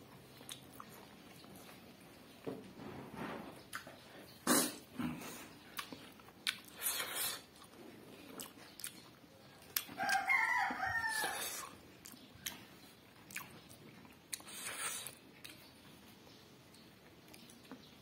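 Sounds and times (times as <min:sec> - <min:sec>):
person eating smacking: 0:00.2 - 0:01.8, 0:03.6 - 0:10.3, 0:11.0 - 0:15.8
rooster crowing: 0:09.9 - 0:11.7.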